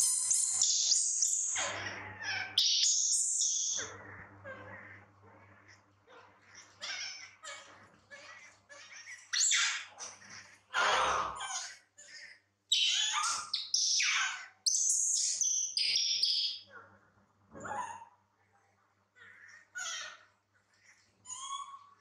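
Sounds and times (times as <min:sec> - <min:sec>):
baby monkey crying and screeching: 0:00.0 - 0:05.0, 0:06.5 - 0:16.5, 0:19.3 - 0:20.3, 0:21.3 - 0:22.0.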